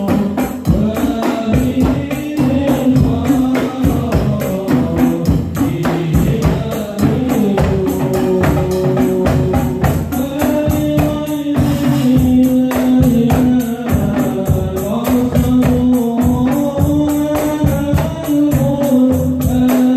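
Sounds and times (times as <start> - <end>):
frame drums and cymbal beats: 0.0 - 19.9.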